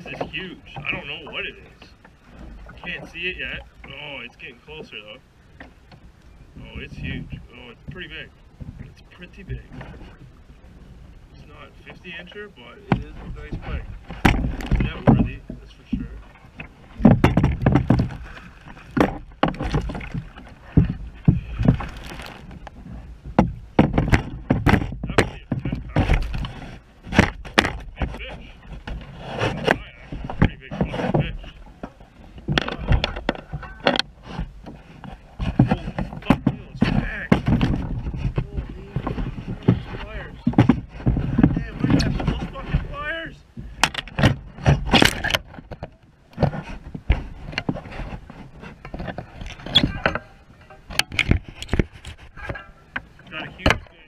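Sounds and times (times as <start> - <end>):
knocks and scrapes against kayak: 0.0 - 54.0
wind rumbling on microphone: 0.0 - 54.0
fishing gear knocking on kayak: 12.8 - 16.2, 17.0 - 28.3, 35.1 - 42.9.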